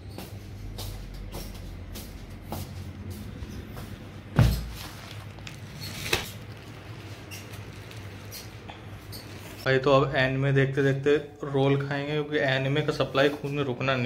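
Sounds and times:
steady low hum: 0.0s - 13.1s
heavy thump: 4.3s - 4.9s.

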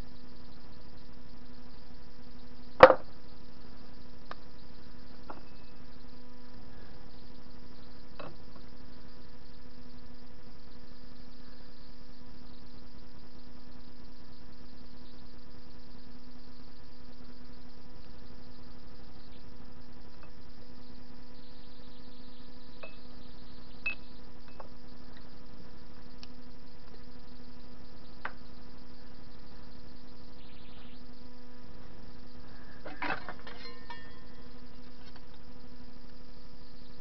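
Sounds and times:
clinking ringing metal rattle: 32.9s - 34.4s.

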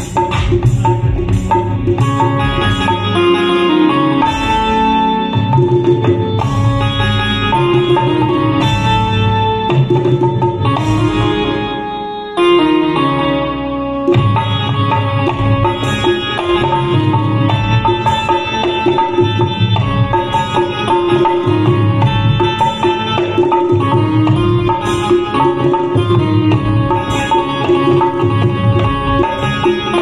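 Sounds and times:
barrel drum beating: 0.0s - 3.3s, 14.1s - 30.0s
keyboard melody of held notes: 0.0s - 30.0s.

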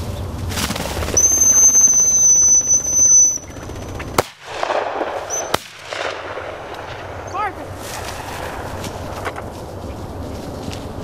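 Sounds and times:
high-pitched dog whistle blast: 1.2s - 3.5s
shotgun shots: 4.1s - 9.1s.

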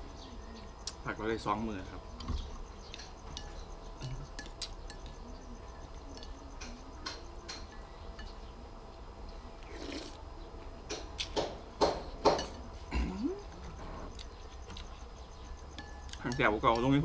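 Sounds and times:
metal spoon clinking on ceramic bowl: 6.1s - 6.4s, 15.8s - 17.0s
loud slurps of soup: 9.6s - 10.2s.

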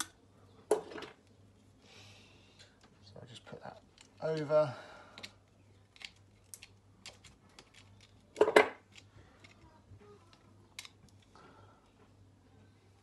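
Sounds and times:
cable handling sound: 5.2s - 11.3s.

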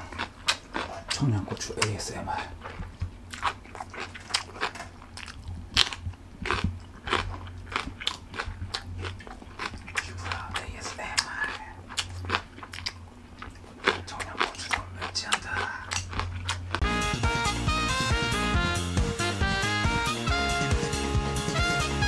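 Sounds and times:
chili peppers crunching: 0.0s - 16.8s
faint low hum: 0.0s - 16.8s.

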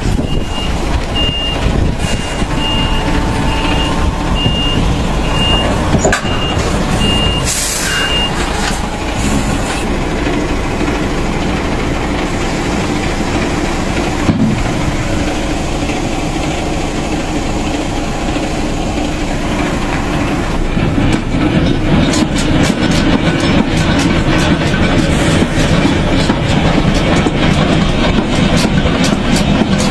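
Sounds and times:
diesel truck engine running: 0.0s - 29.9s
warning beeper beeping: 0.1s - 8.6s
hiss of air: 7.4s - 9.9s.

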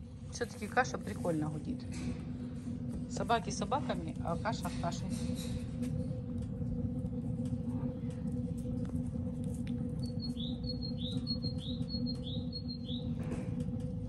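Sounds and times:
cooking pot humming: 0.0s - 14.0s
bird chirping: 10.0s - 13.2s.

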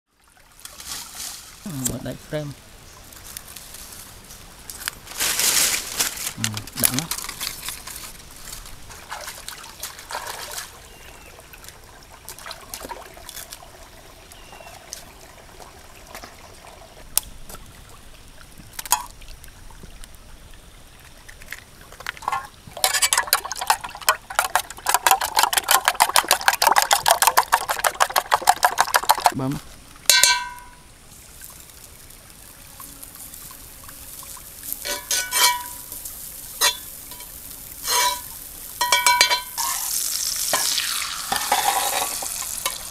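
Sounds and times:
dry leaves crinkling: 3.2s - 10.7s
spoon beating eggs in metal pot: 22.8s - 29.4s.

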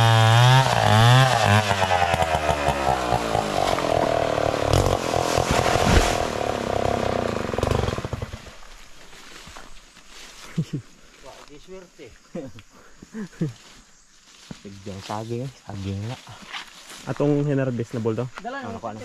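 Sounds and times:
chainsaw engine revving down: 0.0s - 8.8s.

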